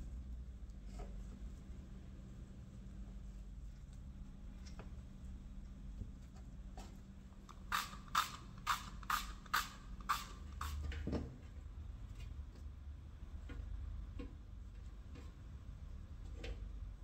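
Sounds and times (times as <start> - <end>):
oil spray bottle squirting: 7.5 - 10.8.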